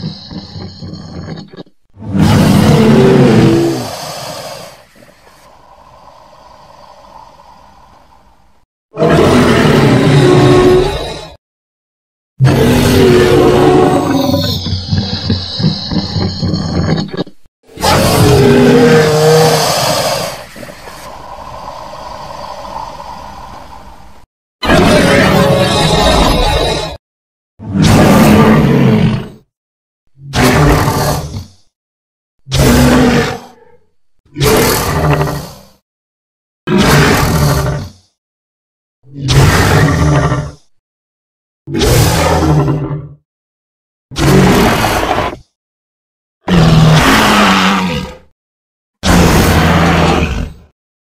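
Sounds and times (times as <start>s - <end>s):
creature roar: 2.0s - 4.9s, 9.0s - 11.4s, 12.4s - 17.1s, 17.7s - 23.4s, 24.6s - 27.0s, 27.6s - 29.4s, 30.2s - 31.6s, 32.5s - 35.8s, 36.7s - 38.1s, 39.1s - 40.7s, 41.7s - 43.2s, 44.1s - 45.5s, 46.4s - 48.3s, 49.0s - 50.7s.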